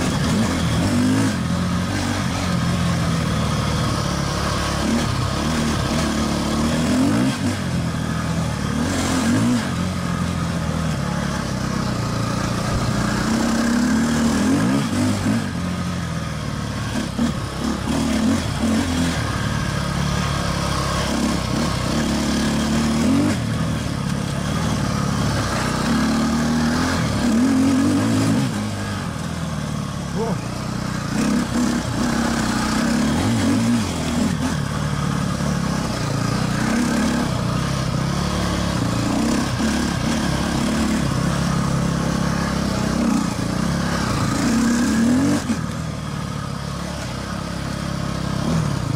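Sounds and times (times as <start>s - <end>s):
dirt bike engine revving: 0.0s - 48.9s.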